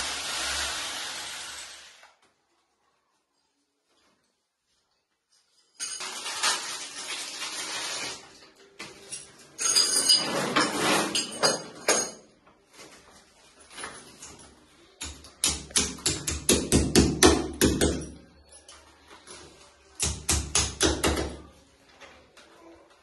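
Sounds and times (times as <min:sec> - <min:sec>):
handling and clattering: 0:08.4 - 0:15.4
hammer striking a wall: 0:15.0 - 0:18.2, 0:20.0 - 0:21.4.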